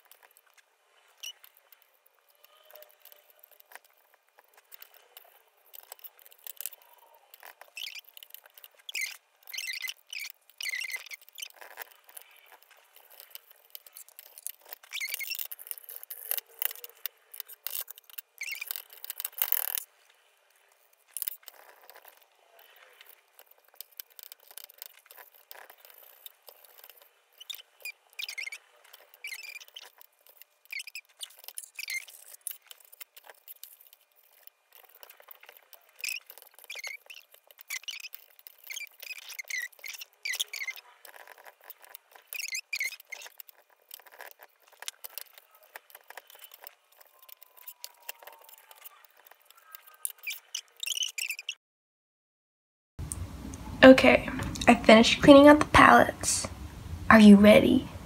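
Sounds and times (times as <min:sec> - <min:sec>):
cloth squeaking on metal: 0:05.8 - 0:19.8, 0:21.2 - 0:51.6.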